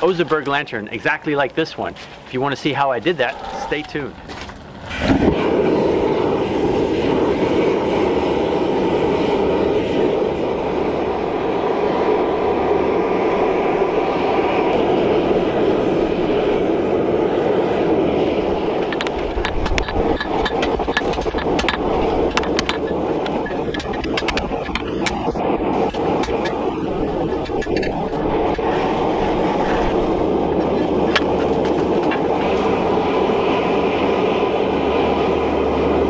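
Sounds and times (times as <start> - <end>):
gas forge burner rushing: 0.0 - 36.0.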